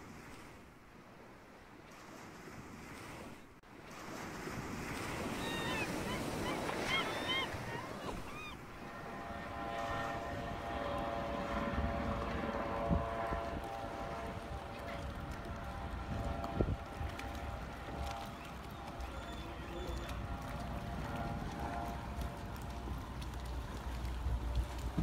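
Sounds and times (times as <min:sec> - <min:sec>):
water waves: 0:00.0 - 0:25.0
wind: 0:00.0 - 0:25.0
steady humming tone: 0:05.1 - 0:25.0.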